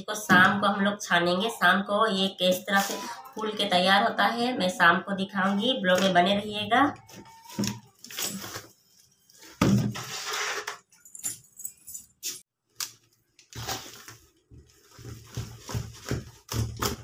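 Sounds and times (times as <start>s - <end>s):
plastic sack rustling: 13.5s - 17.0s.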